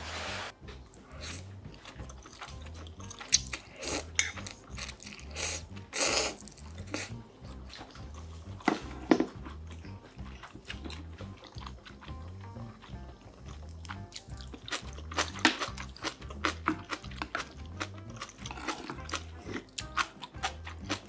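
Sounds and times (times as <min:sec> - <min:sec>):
soft background music with beat: 0:00.5 - 0:21.0
wet chewing and mouth clicks: 0:00.9 - 0:08.7, 0:09.3 - 0:21.0
slurping noodles: 0:03.2 - 0:07.2, 0:18.2 - 0:19.8.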